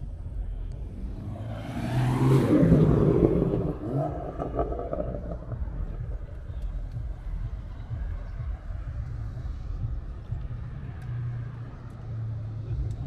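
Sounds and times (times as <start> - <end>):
low background rumble: 0.0 - 13.0
car driving past: 0.8 - 6.6.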